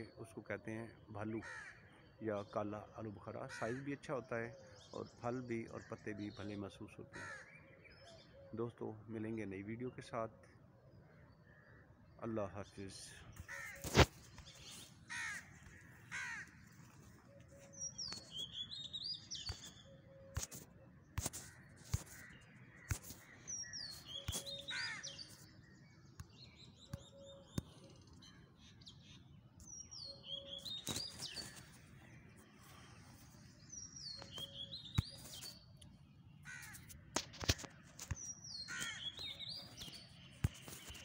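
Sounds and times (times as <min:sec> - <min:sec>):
short lower bird calls: 0:17.2 - 0:25.5, 0:29.8 - 0:35.8
bird high sweeping song: 0:17.5 - 0:20.6, 0:22.0 - 0:35.8.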